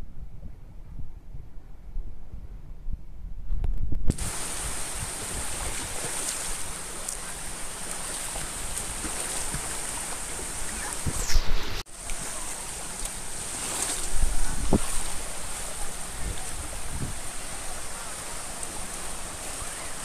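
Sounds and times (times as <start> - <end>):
wind buffeting microphone: 0.0 - 20.0
small waves washing on sand: 4.1 - 20.0.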